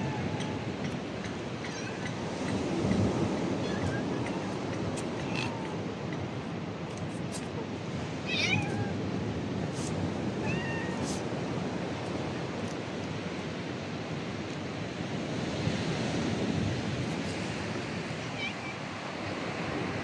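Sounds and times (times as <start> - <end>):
cat meowing: 0.0 - 0.7, 1.6 - 2.2, 3.6 - 5.9, 8.2 - 9.0, 10.4 - 11.3.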